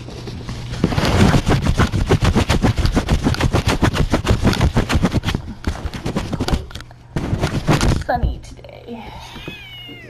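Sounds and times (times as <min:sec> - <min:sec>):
cat fur rubbing on microphone: 0:00.9 - 0:05.4.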